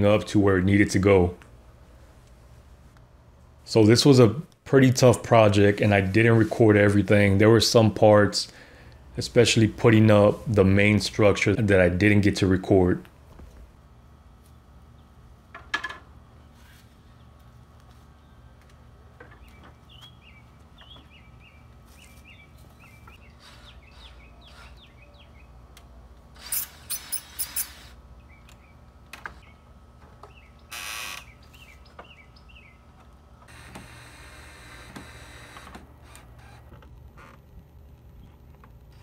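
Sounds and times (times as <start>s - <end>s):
birds chirping: 16.4s - 25.6s, 28.1s - 33.1s
cordless drill driving screws: 23.4s - 24.8s, 26.3s - 28.0s, 30.7s - 31.3s, 33.5s - 36.6s.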